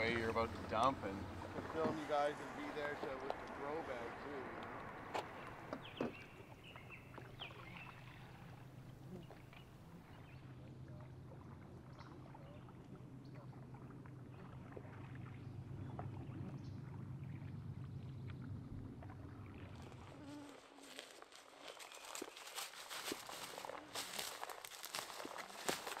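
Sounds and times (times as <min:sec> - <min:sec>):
paddle knocks and splashes: 0:00.0 - 0:02.3, 0:04.7 - 0:07.5
water rushing: 0:00.0 - 0:09.7.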